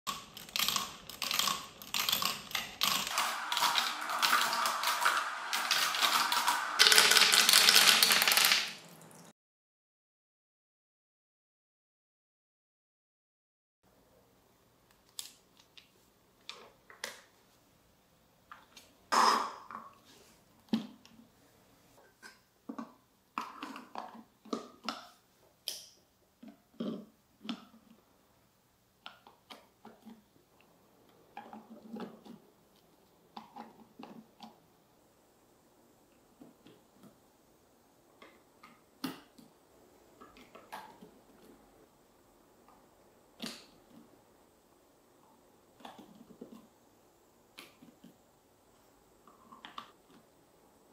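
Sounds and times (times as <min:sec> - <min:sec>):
plastic pieces clicking and knocking: 0:00.1 - 0:08.9.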